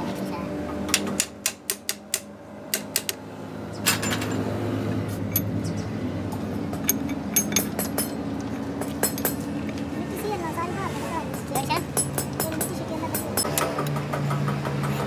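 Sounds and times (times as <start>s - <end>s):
metallic clinks of metal parts: 5.2s - 5.6s, 6.8s - 8.2s.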